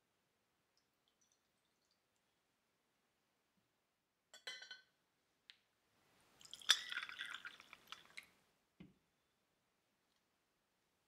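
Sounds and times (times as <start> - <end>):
liquid trickling and dripping: 0.8 - 2.4, 6.4 - 8.4
glass teaware clinking: 4.4 - 4.9, 6.5 - 7.4.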